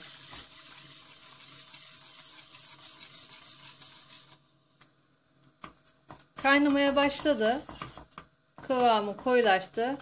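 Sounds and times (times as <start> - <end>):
whisk scraping in metal pot: 0.0 - 4.5, 6.4 - 8.3.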